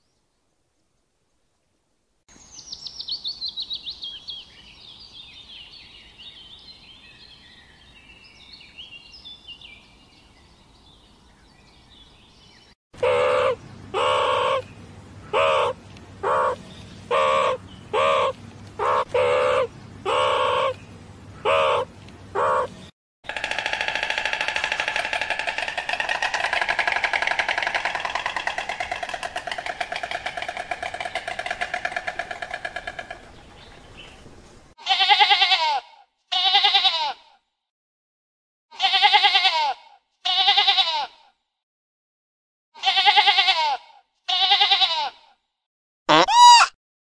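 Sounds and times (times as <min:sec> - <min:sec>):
sheep bleating: 0:34.8 - 0:37.2, 0:38.7 - 0:41.1, 0:42.8 - 0:45.2.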